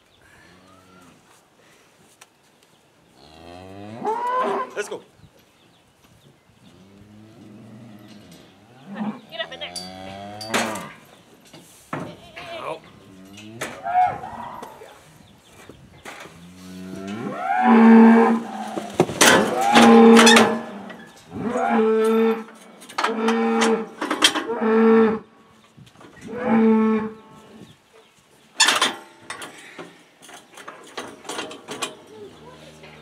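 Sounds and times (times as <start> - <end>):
metal clangs from cattle chute: 9.7 - 12.2, 18.5 - 21.0, 21.6 - 24.5, 28.6 - 32.2
cattle mooing: 16.5 - 23.9, 32.2 - 33.0.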